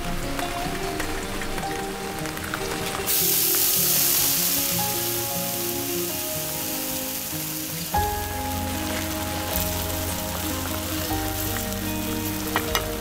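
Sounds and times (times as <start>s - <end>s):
sauce sizzling in a hot pan: 3.1s - 13.0s.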